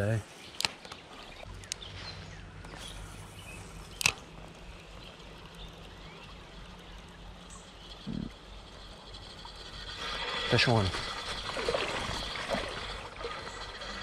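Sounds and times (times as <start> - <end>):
fishing reel whirring: 2.6 - 14.0
sharp reel click: 3.8 - 4.3.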